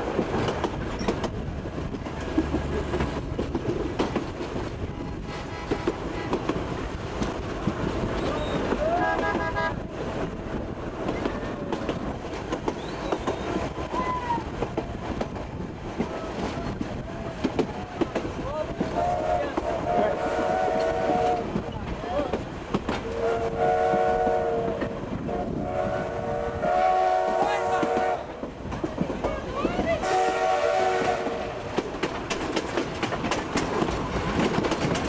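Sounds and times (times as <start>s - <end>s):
train wheels clicking over rails: 0.0s - 35.0s
steam whistle blast: 23.1s - 28.3s, 30.0s - 31.5s.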